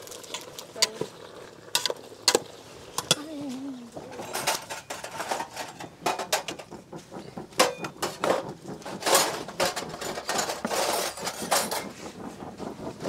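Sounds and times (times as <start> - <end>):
ladle and pot clinking: 0.1 - 3.3, 4.0 - 6.7.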